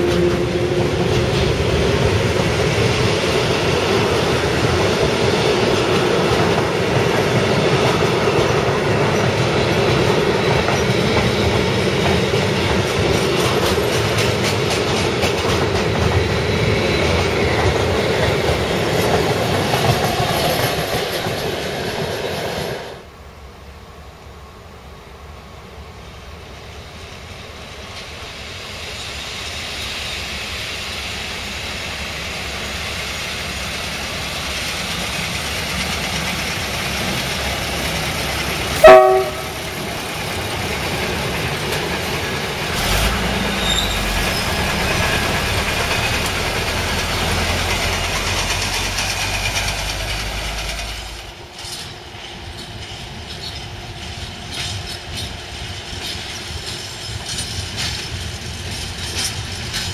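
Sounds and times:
distant freight train: 0:00.0 - 0:59.9
vehicle horn blast: 0:38.8 - 0:39.6
engine rumbling passing by: 0:42.7 - 0:51.3.

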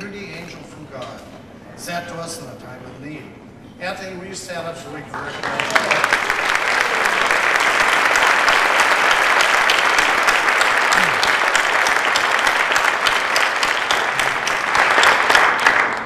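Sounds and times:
audience applauding: 0:05.2 - 0:16.0.

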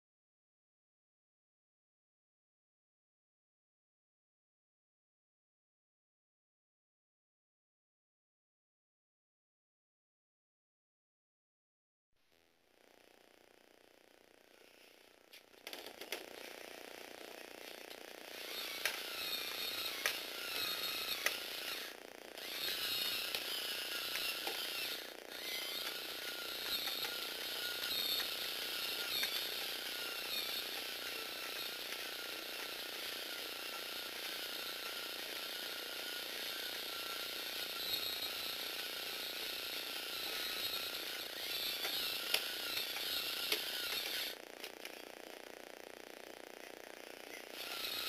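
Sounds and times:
electric motor gearbox whining: 0:15.1 - 0:48.0
plastic gears ticking and clicking: 0:17.0 - 0:45.5, 0:46.6 - 0:48.0.

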